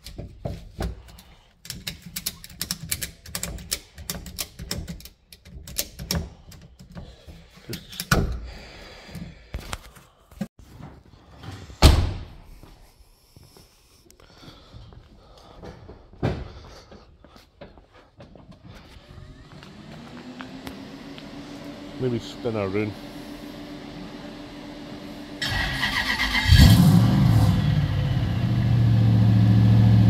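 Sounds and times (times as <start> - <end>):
tools clicking and rattling: 1.0 - 8.2.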